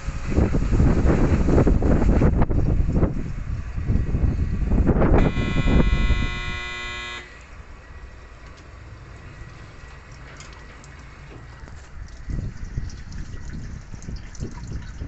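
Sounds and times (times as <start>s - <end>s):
dishwasher buzzer tone: 5.2s - 7.4s.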